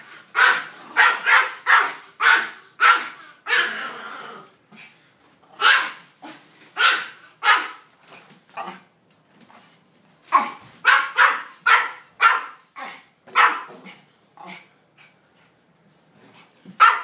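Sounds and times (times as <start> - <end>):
small dog barking sharply: 0.4 - 3.6, 6.8 - 7.8, 10.4 - 12.6, 13.3 - 13.7, 16.8 - 17.0.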